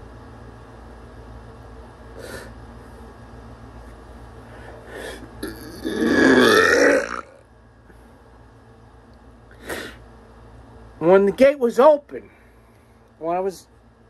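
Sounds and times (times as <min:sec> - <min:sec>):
throaty vocal sound: 0:05.0 - 0:07.4
person sniffing: 0:09.6 - 0:10.0.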